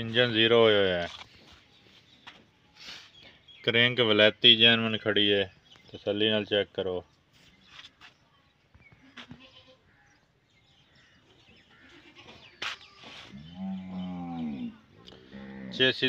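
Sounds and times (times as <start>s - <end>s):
drawn-out animal call: 11.7s - 15.8s.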